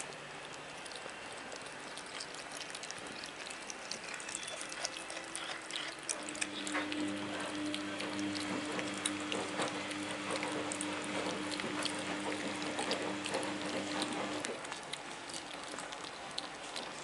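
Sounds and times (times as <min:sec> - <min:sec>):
cats chewing and licking: 0:00.0 - 0:17.0
steady low hum: 0:04.8 - 0:16.9.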